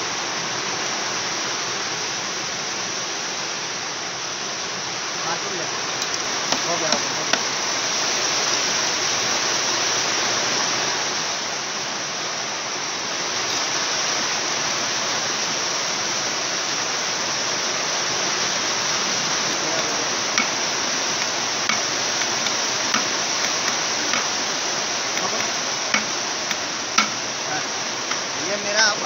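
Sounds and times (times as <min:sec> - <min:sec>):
steady hiss: 0:00.0 - 0:29.0
light hammer taps: 0:19.8 - 0:20.6, 0:21.2 - 0:24.3, 0:25.2 - 0:27.2.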